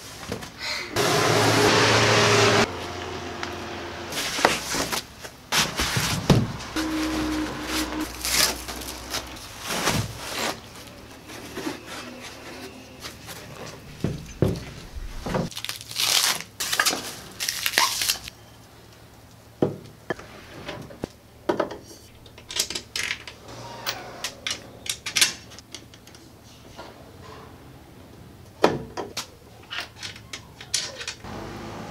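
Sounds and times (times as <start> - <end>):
packaging rustling and tearing: 7.7 - 13.5, 15.4 - 18.3.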